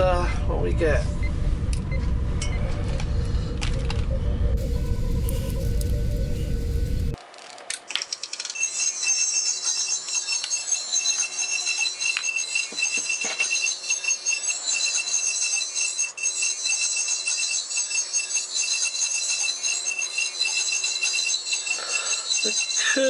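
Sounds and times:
pulsing electronic beeps and chirps: 3.7 - 7.2, 8.6 - 23.0.

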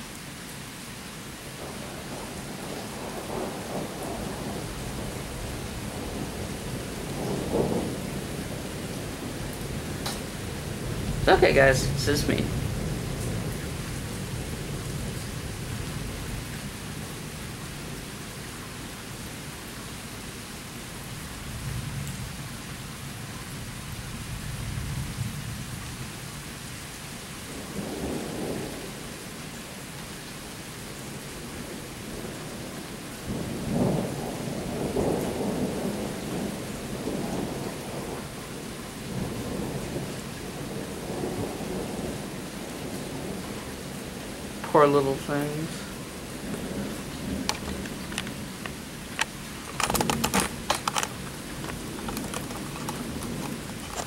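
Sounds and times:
steady rain: 0.0 - 54.0
thunder rumbling: 1.6 - 17.5, 31.6 - 38.3, 39.1 - 44.7, 45.6 - 54.0.

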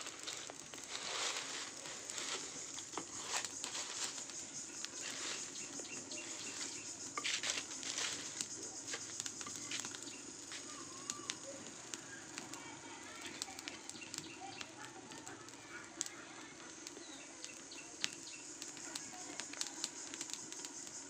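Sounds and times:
dry leaves rustling: 0.0 - 11.8
fire crackling and popping: 0.0 - 21.0.

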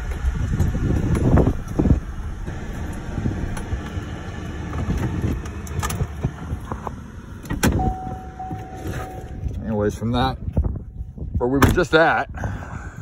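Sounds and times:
car engine and tyre rumble: 0.0 - 13.0.

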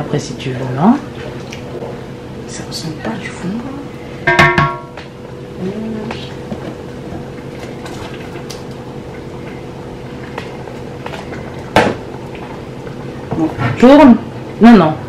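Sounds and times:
steady mechanical hum: 0.0 - 15.0
wooden spoon stirring in pot: 5.0 - 14.0.

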